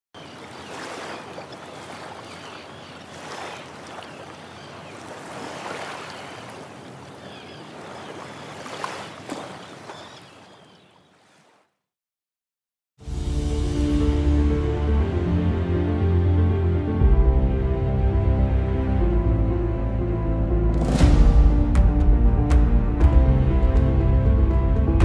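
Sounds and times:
small waves lapping: 0.2 - 11.8.

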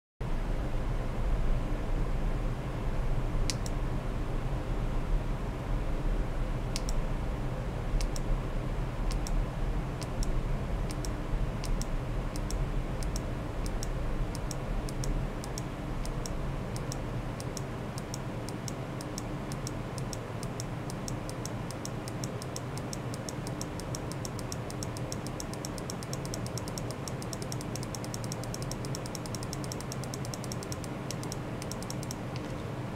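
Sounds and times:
steady low hum: 0.2 - 32.9
sharp high-pitched clicks: 6.8 - 7.0, 8.0 - 8.3, 9.1 - 9.4, 10.0 - 32.5.

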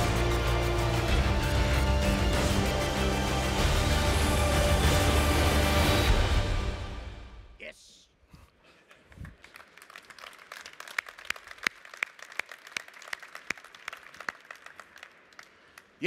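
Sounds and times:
audience applauding: 8.9 - 16.0.

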